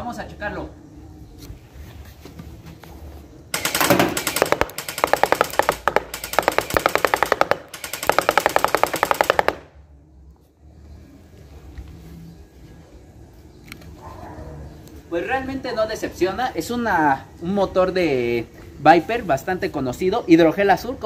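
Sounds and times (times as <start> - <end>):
gel blaster firing full-auto: 3.6 - 9.7.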